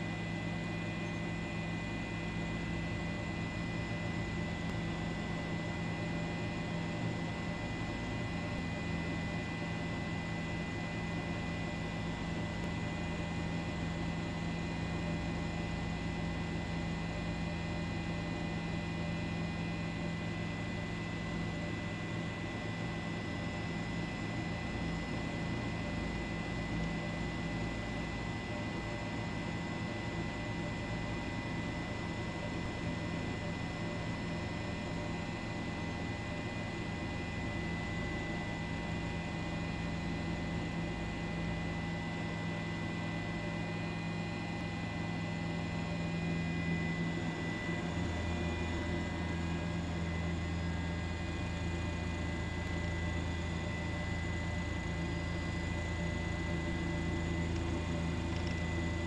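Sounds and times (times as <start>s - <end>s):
steady hum: 31.6s - 59.0s.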